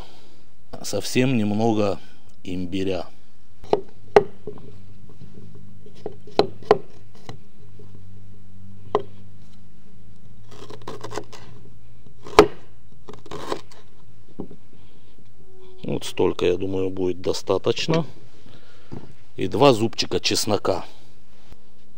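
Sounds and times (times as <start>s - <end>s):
knife scraping cutting board: 10.5s - 11.6s.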